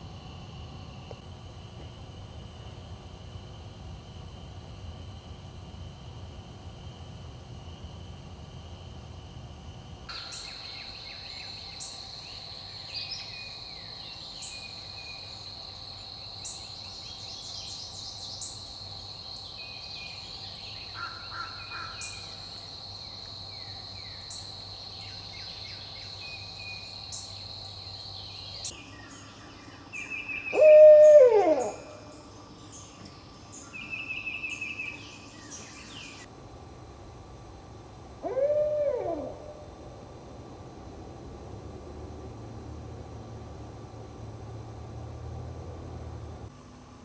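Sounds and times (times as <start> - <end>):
owl hooting: 30.0 - 32.4, 38.2 - 39.7.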